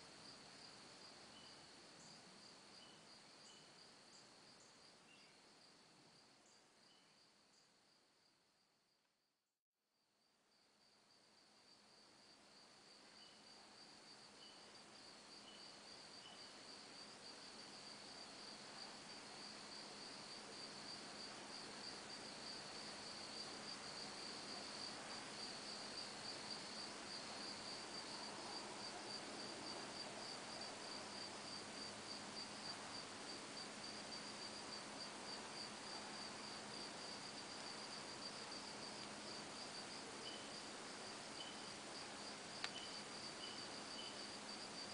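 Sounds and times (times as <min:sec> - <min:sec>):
crickets trilling: 0:12.5 - 0:44.9.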